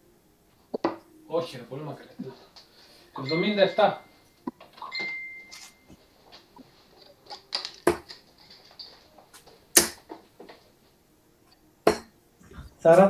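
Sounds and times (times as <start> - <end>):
darts thudding into dartboard: 7.6 - 8.2, 9.7 - 10.2, 11.9 - 12.2.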